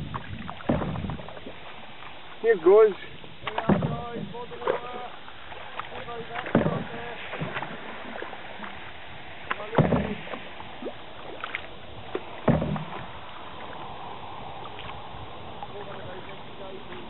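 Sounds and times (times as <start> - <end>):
canoe paddle strokes in water: 0.0 - 17.0
hiss of moving water: 4.0 - 17.0.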